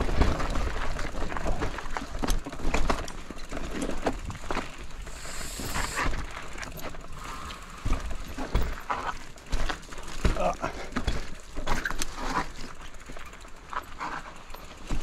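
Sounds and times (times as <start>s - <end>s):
bike rattling over rocks: 0.0s - 15.0s
bike tyres rolling over stones: 0.0s - 15.0s
short hiss: 5.1s - 6.1s.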